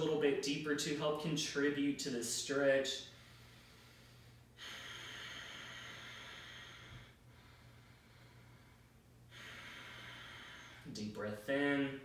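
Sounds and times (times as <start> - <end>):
man breathing slowly: 3.0 - 11.0.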